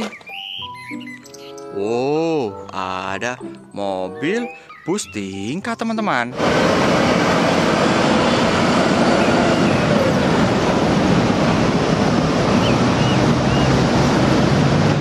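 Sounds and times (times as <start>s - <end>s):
bus engine humming: 6.3s - 15.0s
street traffic: 6.3s - 15.0s
wind noise on microphone: 6.4s - 15.0s.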